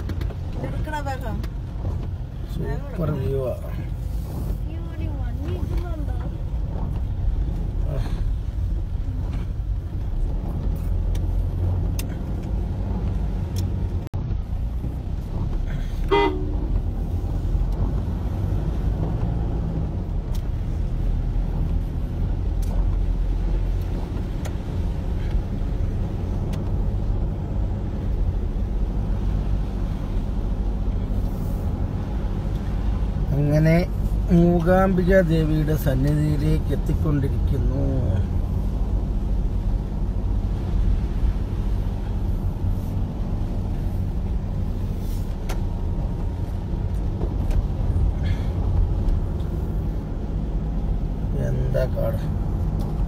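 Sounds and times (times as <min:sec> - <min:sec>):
vehicle engine and road rumble: 0:00.0 - 0:53.0
short horn toot: 0:16.0 - 0:16.7.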